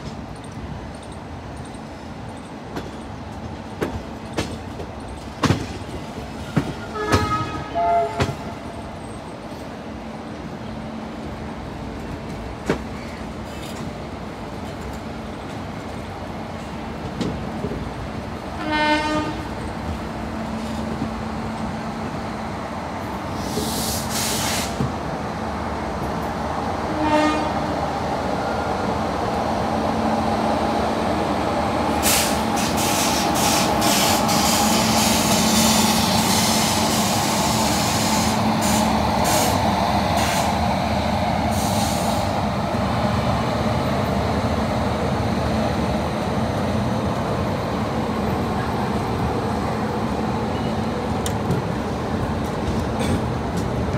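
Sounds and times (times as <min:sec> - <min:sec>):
train horn: 0:06.8 - 0:08.5, 0:18.6 - 0:19.5, 0:26.9 - 0:27.7
air hiss bursts: 0:23.3 - 0:24.8, 0:32.0 - 0:40.6, 0:41.4 - 0:42.4.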